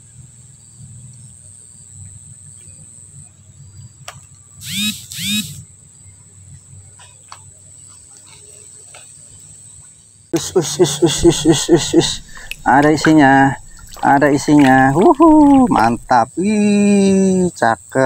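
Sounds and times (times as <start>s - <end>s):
insect trill: 0.0s - 18.0s
flowing stream: 10.8s - 16.2s
loud arched calls: 11.1s - 16.2s.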